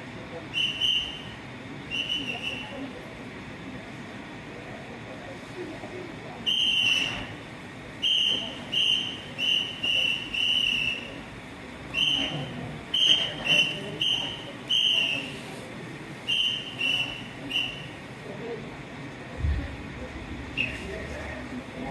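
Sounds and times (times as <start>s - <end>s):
short whistle blasts: 0.5s - 2.7s, 6.5s - 7.4s, 8.0s - 11.2s, 11.9s - 15.4s, 16.3s - 18.0s, 20.6s - 20.9s.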